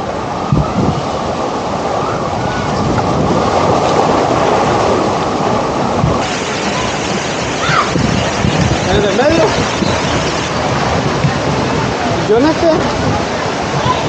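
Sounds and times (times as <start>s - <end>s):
churning splashing water: 0.1s - 14.0s
children shouting: 6.7s - 8.2s, 13.7s - 14.0s.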